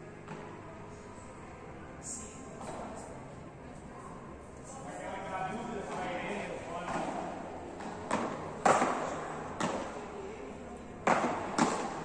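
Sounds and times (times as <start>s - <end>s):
paddles hitting ball: 6.8s - 10.0s, 11.0s - 12.0s.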